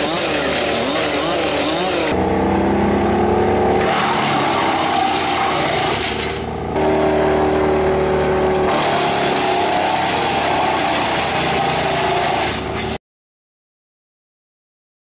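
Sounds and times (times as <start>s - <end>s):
branches being shredded: 0.0s - 2.1s, 3.7s - 13.0s
wood chipper engine: 0.0s - 13.0s.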